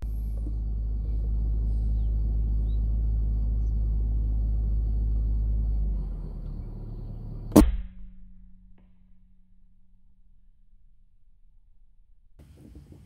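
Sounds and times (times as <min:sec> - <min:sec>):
low rumble: 0:00.0 - 0:13.0
air rifle shot: 0:07.5 - 0:08.1.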